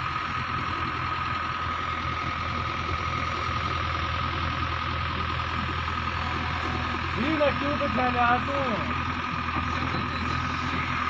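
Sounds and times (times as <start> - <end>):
diesel truck engine running: 0.0 - 11.0
hydraulic hoist whine: 3.5 - 11.0.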